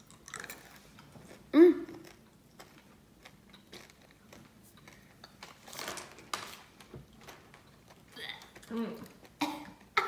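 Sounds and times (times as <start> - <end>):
chewing crunchy candy: 0.0 - 5.8.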